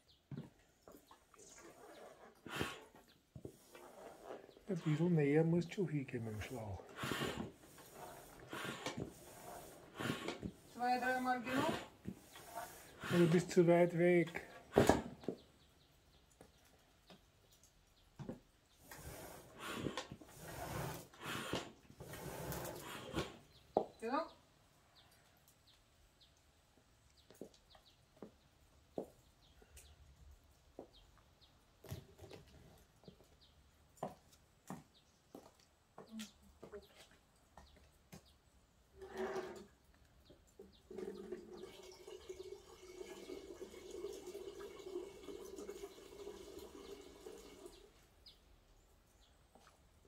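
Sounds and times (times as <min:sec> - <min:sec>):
rushing pouring sound: 0:41.4 - 0:48.0.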